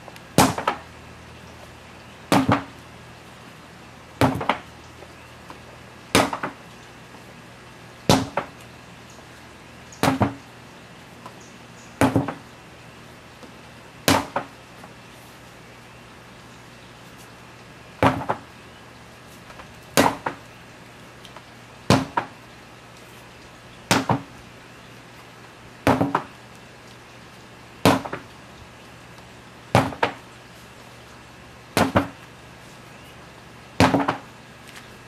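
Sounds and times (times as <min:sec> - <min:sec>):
sledgehammer striking rubber tyre: 0:00.4 - 0:00.8, 0:14.1 - 0:14.5, 0:31.8 - 0:32.2, 0:33.8 - 0:34.2.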